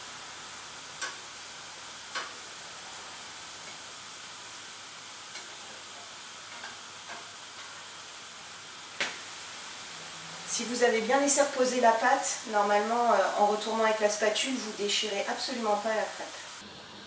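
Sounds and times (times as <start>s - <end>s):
crepes sizzling in pans: 0.0s - 17.0s
spatula clicking against pan: 1.0s - 1.2s, 2.1s - 2.4s.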